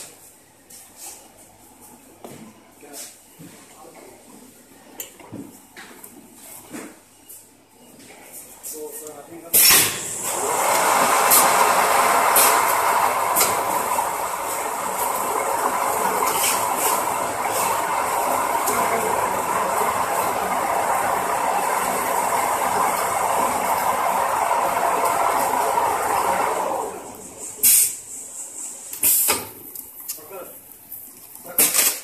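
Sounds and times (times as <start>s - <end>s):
wrapping machine whirring: 9.7s - 27.9s.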